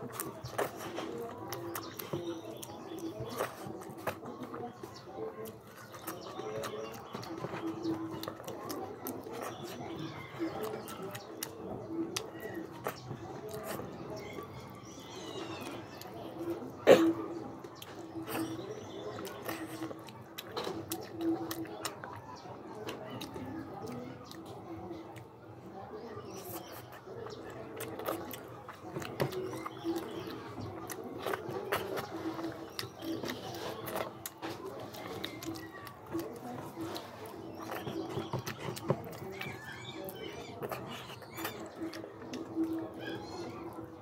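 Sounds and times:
sharp clicks while eating: 0.0s - 16.1s, 17.6s - 25.3s, 26.2s - 43.5s
fingers picking through food: 0.0s - 16.8s, 26.1s - 44.0s
wet chewing: 0.0s - 44.0s.

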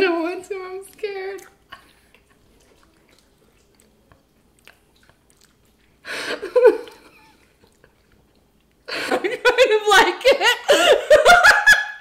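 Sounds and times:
chewing and mouth clicks: 0.8s - 6.0s, 6.7s - 8.9s.

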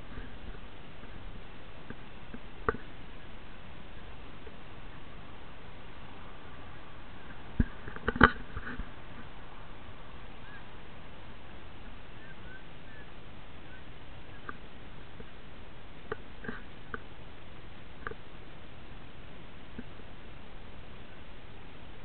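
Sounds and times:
soft clicks and ticks: 1.8s - 3.0s, 14.4s - 15.4s
faint bird chirps: 10.3s - 10.8s, 11.4s - 14.7s.

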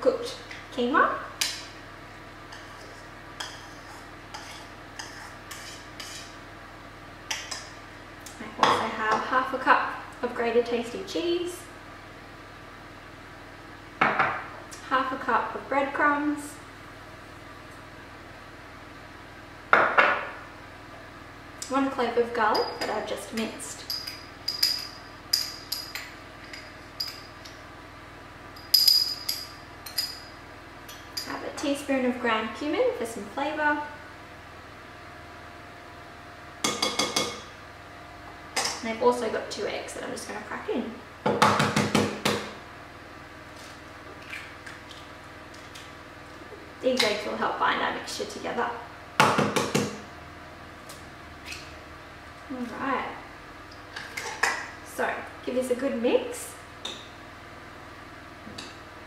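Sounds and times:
spoon scraping bowl: 2.5s - 6.4s.

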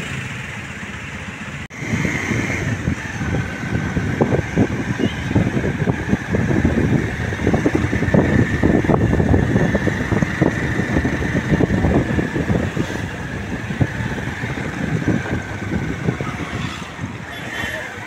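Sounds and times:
vehicle low rumble: 0.0s - 18.0s
wind buffeting: 1.7s - 18.0s.

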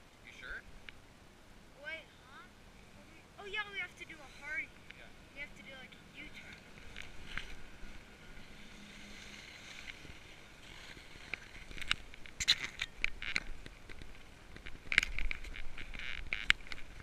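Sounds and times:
skis scraping over packed snow: 6.7s - 12.3s.

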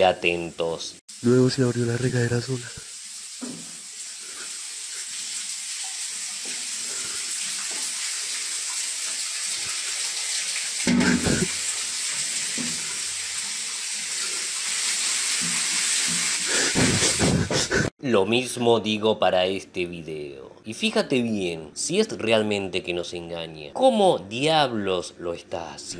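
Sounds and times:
shower spraying on tiled floor: 1.1s - 17.9s.

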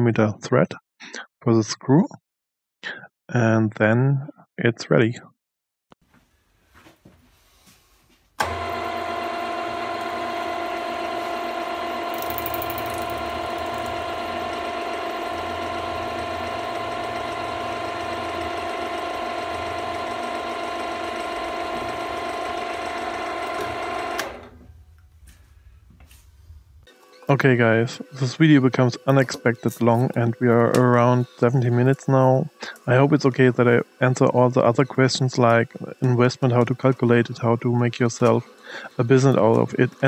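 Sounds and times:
drill press motor whining: 8.4s - 24.6s.

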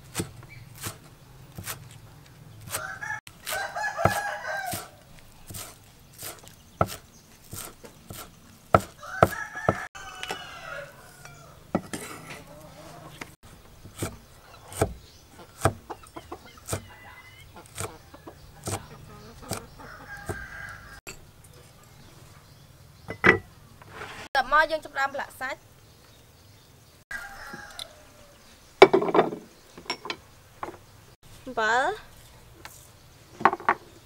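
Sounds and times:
cleaver chopping on wooden block: 2.7s - 4.9s, 5.5s - 10.4s, 13.8s - 16.9s, 17.6s - 18.0s, 18.6s - 20.5s
rooster crowing: 2.8s - 5.0s, 9.0s - 11.6s, 16.7s - 18.4s, 19.2s - 21.0s, 27.1s - 28.4s.

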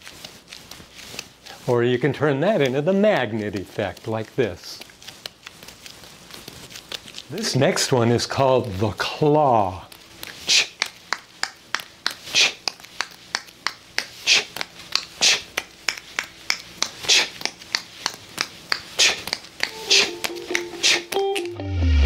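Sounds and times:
juggling balls slapping into hands: 10.4s - 21.6s.

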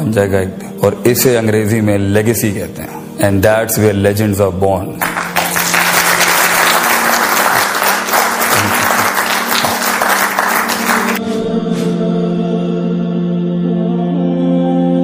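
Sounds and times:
soft music: 0.0s - 15.0s
crowd applauding: 5.0s - 11.2s.

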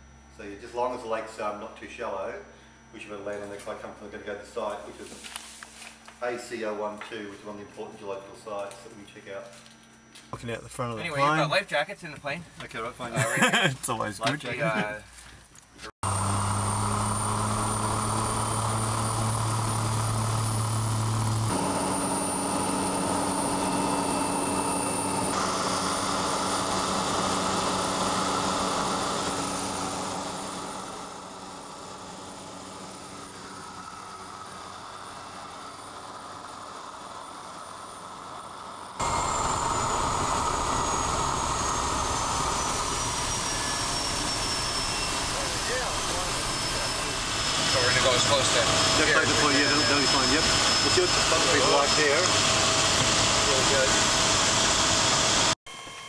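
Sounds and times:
plane engine and propeller drone: 16.0s - 56.0s.

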